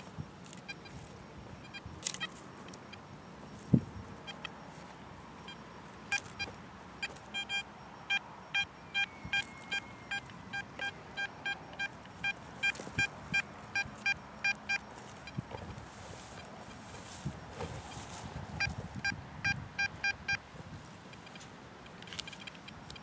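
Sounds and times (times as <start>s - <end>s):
metal detector beeping: 0.0s - 23.0s.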